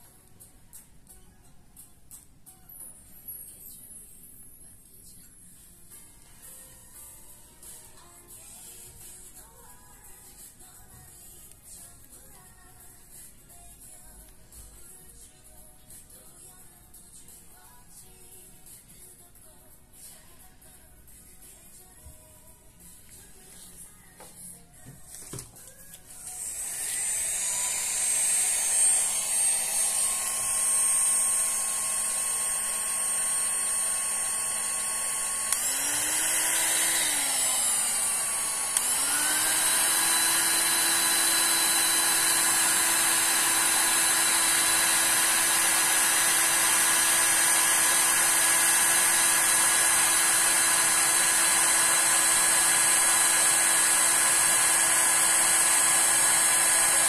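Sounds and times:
heat gun fan whining: 0:25.1 - 0:57.0.

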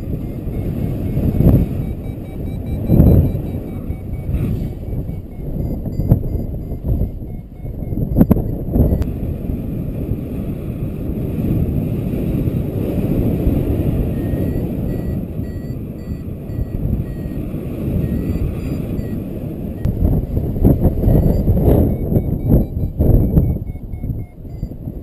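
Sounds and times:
variometer beeping in short pips: 0:00.0 - 0:09.1, 0:14.1 - 0:17.4, 0:18.0 - 0:19.2, 0:20.9 - 0:24.8
wind rushing over microphone: 0:00.0 - 0:25.0.

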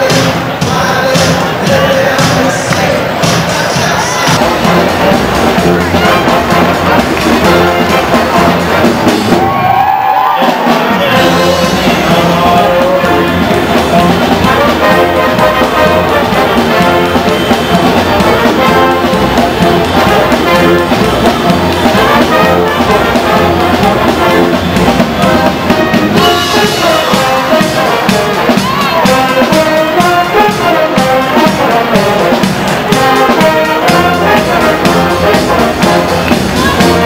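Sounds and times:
brass band with drum kit: 0:00.0 - 0:37.0.

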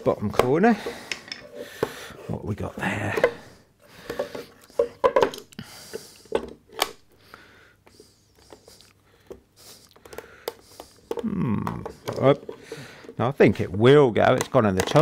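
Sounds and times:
wooden box parts knocking: 0:03.1 - 0:05.5, 0:10.0 - 0:13.2, 0:14.2 - 0:15.0.

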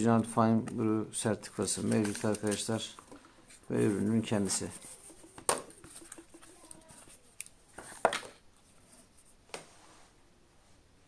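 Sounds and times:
cardboard packaging rustling: 0:01.5 - 0:08.3.

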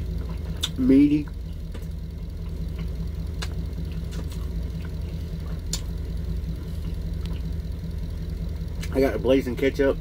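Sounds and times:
truck engine idling: 0:00.0 - 0:10.0
faint chewing clicks: 0:00.2 - 0:06.1.

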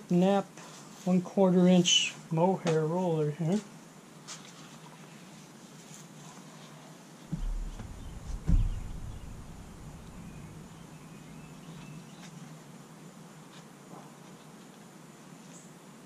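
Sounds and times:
dull thumps of foam panel: 0:07.3 - 0:10.8
low rustling: 0:07.3 - 0:11.9.

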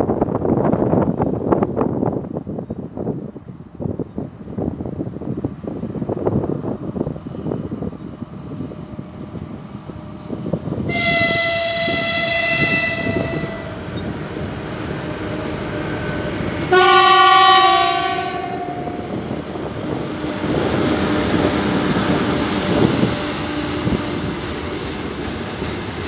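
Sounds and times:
train rumble: 0:00.0 - 0:26.0
locomotive horn blasts: 0:10.9 - 0:13.8, 0:16.7 - 0:19.2.

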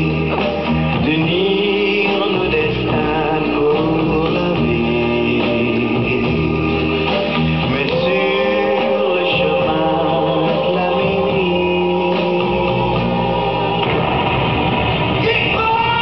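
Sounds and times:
instrumental backing music: 0:00.0 - 0:16.0
person singing long gliding notes: 0:07.6 - 0:13.9.

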